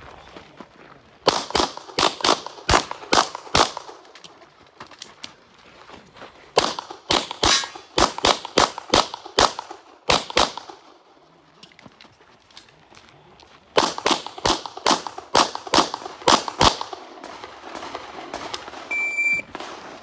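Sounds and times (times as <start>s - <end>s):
rapid pistol shots with echo: 1.2s - 4.0s, 6.6s - 10.9s, 13.8s - 18.9s.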